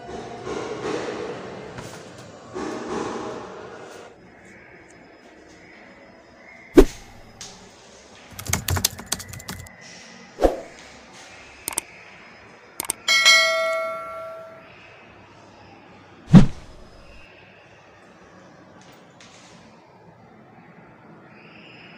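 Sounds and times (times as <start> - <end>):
keyboard-like clicks: 8.3 - 9.7, 12.8 - 13.0
sharp clicks: 8.3 - 9.7, 11.7 - 11.9, 12.8 - 13.0
bell ding: 12.9 - 14.6.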